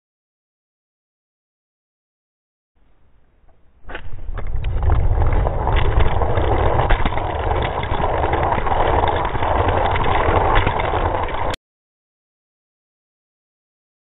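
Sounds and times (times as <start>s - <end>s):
toy cars rolling on plastic track: 4.0s - 11.6s.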